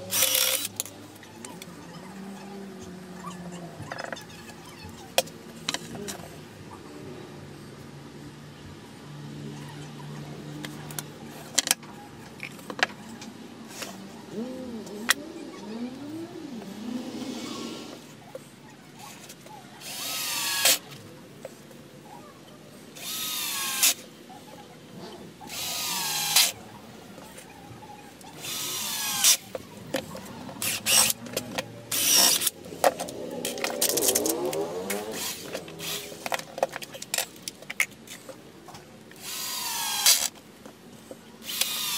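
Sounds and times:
soft whirr: 0.0 - 41.9
cordless drill driving screw: 0.1 - 0.9, 19.8 - 20.8, 23.0 - 24.0, 25.5 - 26.5, 28.4 - 29.4, 30.6 - 31.2, 31.9 - 32.5, 35.1 - 36.2, 39.2 - 40.3, 41.4 - 41.9.

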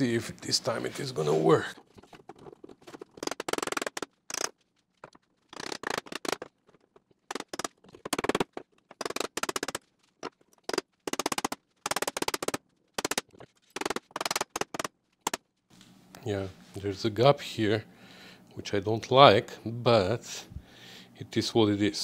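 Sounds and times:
rapid metallic clicking and rattling: 1.8 - 15.4.

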